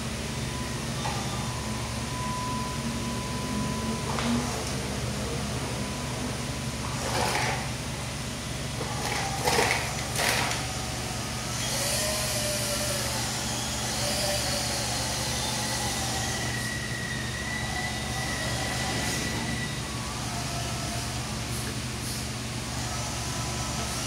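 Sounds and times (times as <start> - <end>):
electric motor and gears whining: 0.0 - 24.0
tyres rolling on tile floor: 6.9 - 7.7, 8.8 - 10.6.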